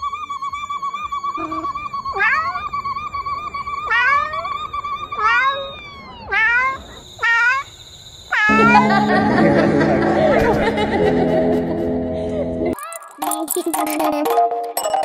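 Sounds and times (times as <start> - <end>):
cat meowing: 1.4 - 2.7, 3.8 - 7.6
steady warbling tone: 8.5 - 15.0.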